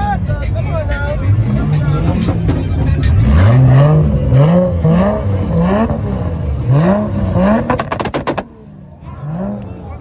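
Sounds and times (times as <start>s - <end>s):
car engine revving in blips: 1.5s - 9.8s
exhaust pops: 7.5s - 8.6s.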